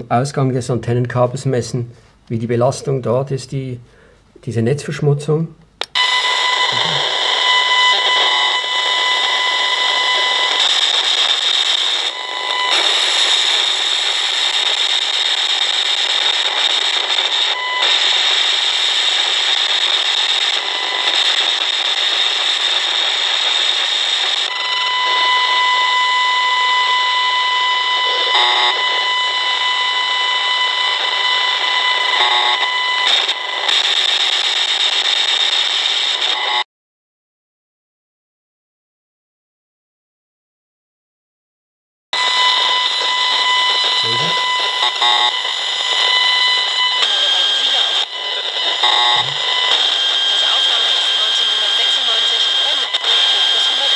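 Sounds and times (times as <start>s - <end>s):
loudspeaker hiss: 6.7s - 7.0s, 44.0s - 44.4s
high steady tone: 42.2s - 53.9s.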